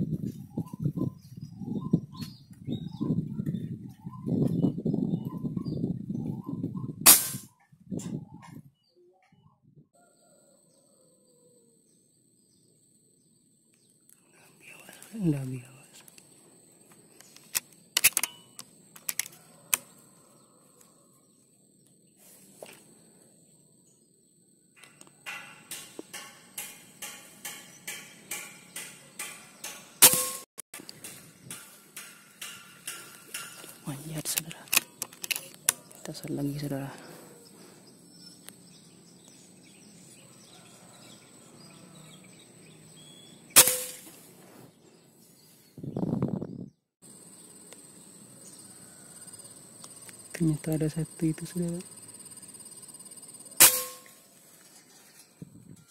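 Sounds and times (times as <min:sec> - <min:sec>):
bird chirps: 0:00.1 - 0:16.4, 0:32.2 - 0:43.6
rifle shot: 0:07.1 - 0:07.5
insect chirps: 0:10.0 - 0:27.9, 0:45.0 - 0:55.5
sharp clicks: 0:17.2 - 0:19.9, 0:24.8 - 0:36.1.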